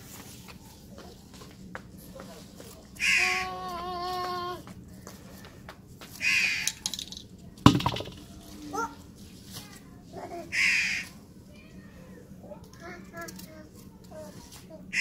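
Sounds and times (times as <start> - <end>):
crow cawing: 6.2 - 6.7, 10.6 - 11.0
sharp knock: 7.7 - 8.2.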